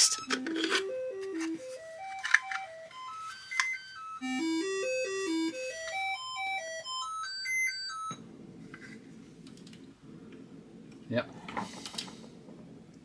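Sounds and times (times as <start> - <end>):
beeping chip tune notes: 0.0 - 8.2.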